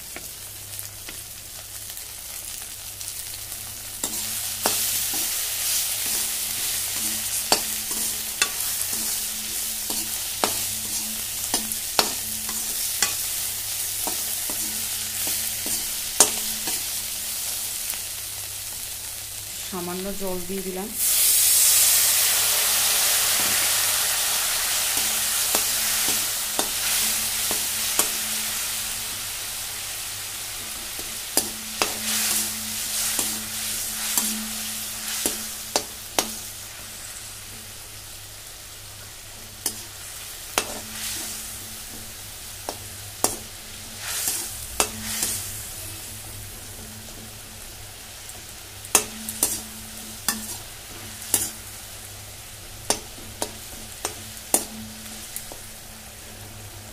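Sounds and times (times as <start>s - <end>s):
food sizzling in oil: 0.0s - 56.9s
steel spatula scraping pan: 4.0s - 17.0s, 30.8s - 36.4s.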